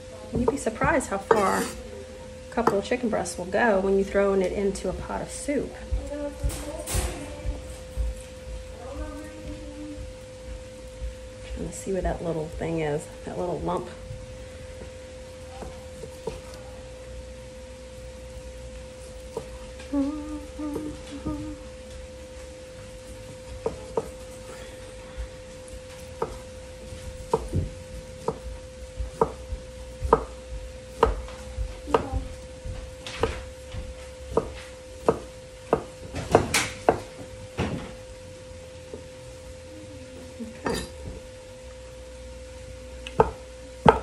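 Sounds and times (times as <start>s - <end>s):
steady hum: 0.0s - 44.0s
knife chopping on cutting board: 1.2s - 1.8s, 26.0s - 26.4s, 27.2s - 28.4s, 29.1s - 32.1s, 34.3s - 37.2s, 43.1s - 44.0s.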